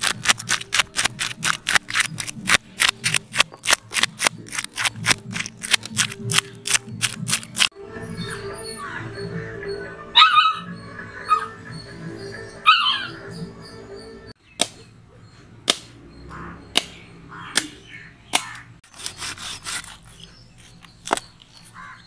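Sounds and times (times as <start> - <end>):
knife scraping fish scales: 0.0 - 7.7, 18.8 - 21.4
background music: 0.0 - 14.4
dog barks: 10.2 - 10.7.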